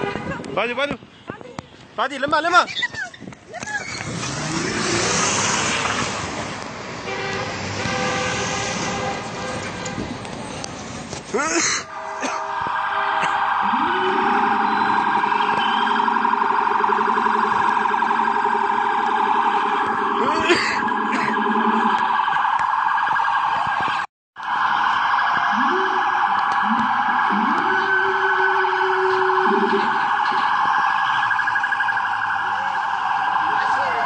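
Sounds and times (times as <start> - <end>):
lower wailing siren: 4.0 - 6.6, 11.8 - 34.0
high-pitched yelp siren: 11.8 - 34.0.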